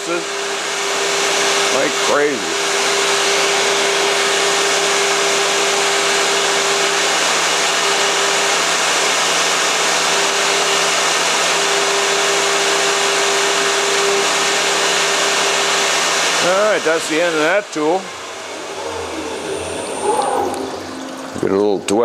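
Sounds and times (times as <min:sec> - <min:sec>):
humming tone: 0:18.1 - 0:21.8.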